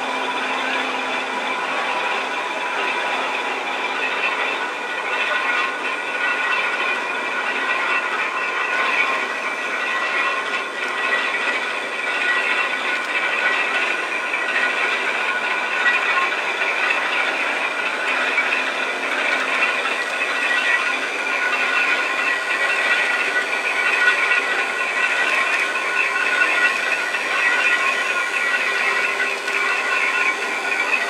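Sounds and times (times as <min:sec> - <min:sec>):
railway turntable whirring: 0:00.0 - 0:31.0.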